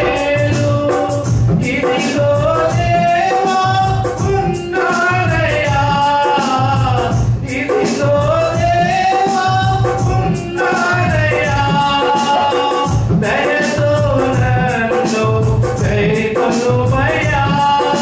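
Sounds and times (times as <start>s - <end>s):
men singing into microphones: 0.0s - 18.0s
musical accompaniment: 0.0s - 18.0s
shaker beat: 0.0s - 18.0s.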